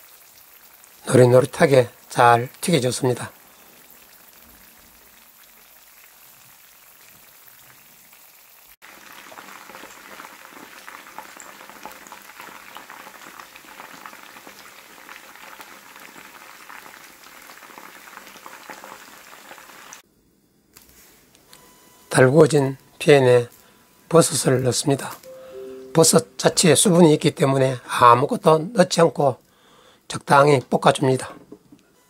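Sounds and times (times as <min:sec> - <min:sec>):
food deep-frying in oil: 0:00.0 - 0:20.0.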